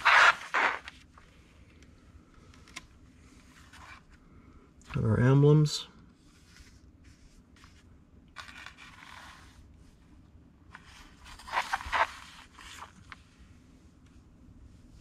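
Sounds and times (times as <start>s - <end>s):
paper rustling and scraping: 0.0s - 1.2s, 6.2s - 9.7s, 10.7s - 13.3s.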